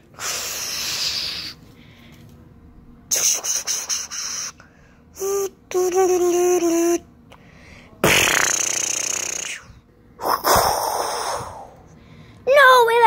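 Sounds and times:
buzzing hums: 0:02.6 - 0:10.8
child making mouth sound effects: 0:08.0 - 0:11.5
short hissing spits: 0:08.0 - 0:11.5.

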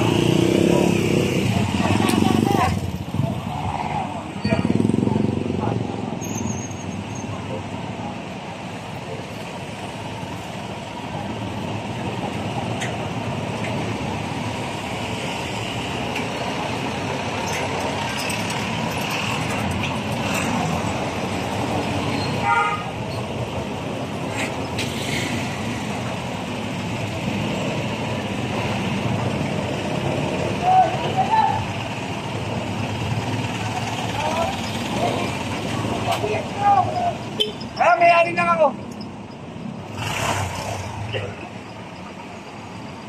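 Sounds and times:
street traffic noise: 0:00.0 - 0:43.0
vehicle horn toot: 0:22.4 - 0:23.0.

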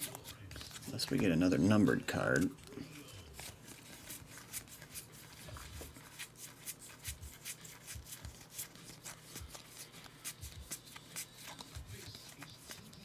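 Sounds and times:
trading cards flicking: 0:06.0 - 0:13.0.

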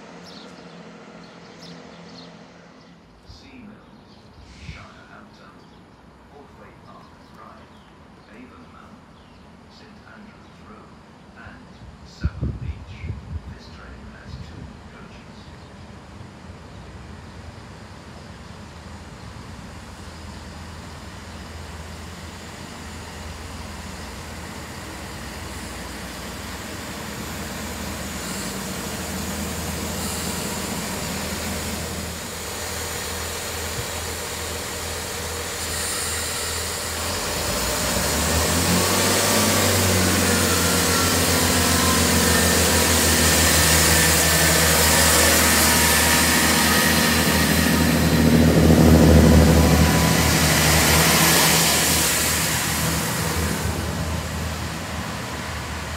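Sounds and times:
diesel train engine: 0:00.0 - 0:55.9
train wheels: 0:19.4 - 0:55.9.

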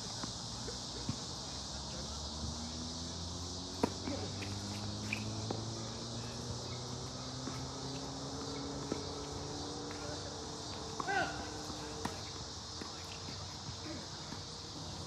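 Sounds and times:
evening insects chorus: 0:00.0 - 0:15.0
tennis ball bouncing: 0:03.7 - 0:15.0.

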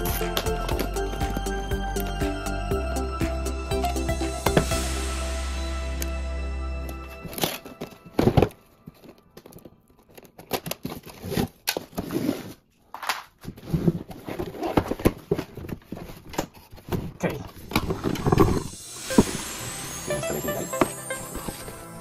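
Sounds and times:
crinkly rustling: 0:08.4 - 0:18.7.

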